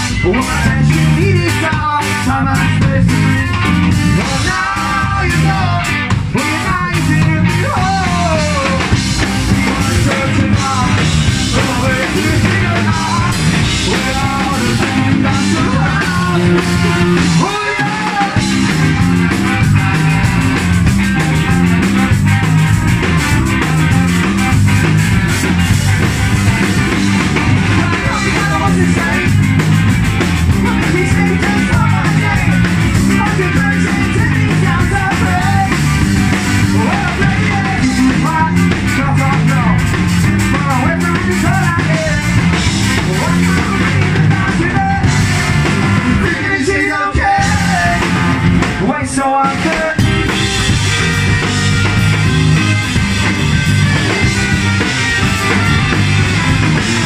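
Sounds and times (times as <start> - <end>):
person singing: 0.0 - 19.6, 27.4 - 29.6, 30.5 - 50.2
ska-punk band playing live: 0.0 - 57.0.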